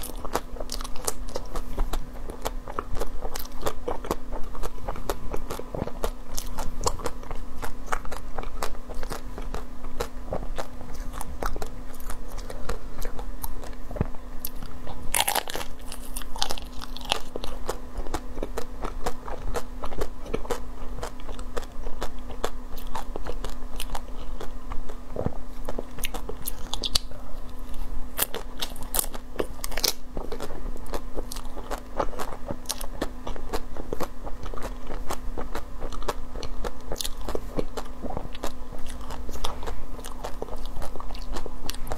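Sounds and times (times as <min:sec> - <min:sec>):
crunching and chewing: 0:00.0 - 0:41.9.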